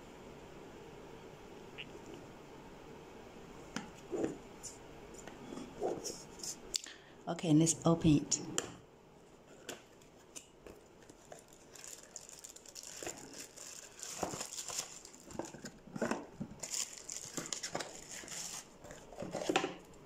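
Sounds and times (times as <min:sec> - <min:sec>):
plastic bag crinkling: 0:09.9 - 0:20.0.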